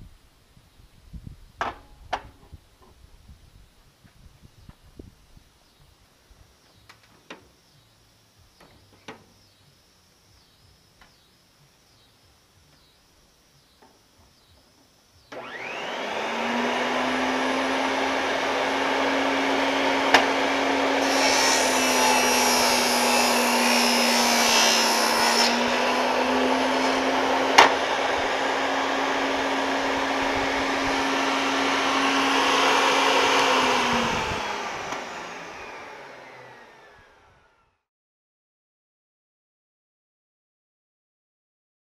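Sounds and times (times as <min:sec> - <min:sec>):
saw blade cutting wood: 0:15.3 - 0:36.9
table saw motor running: 0:15.3 - 0:37.8.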